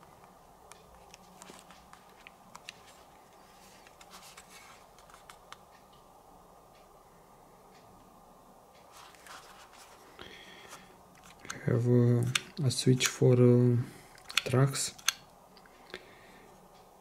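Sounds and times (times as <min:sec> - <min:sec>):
headphones clicking and tapping: 0:01.0 - 0:05.6.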